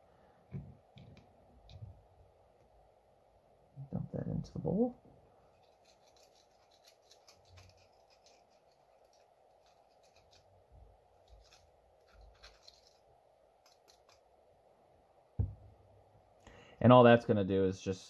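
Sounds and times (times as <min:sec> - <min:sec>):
small metal parts clicking: 0:05.5 - 0:10.5, 0:11.2 - 0:13.0, 0:13.6 - 0:14.2
soft low thumps: 0:15.4 - 0:15.7.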